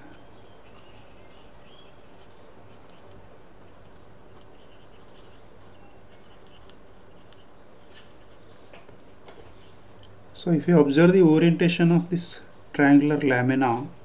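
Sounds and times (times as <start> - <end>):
low background hum: 0.0 - 14.0
pen scratching on paper: 0.6 - 8.5.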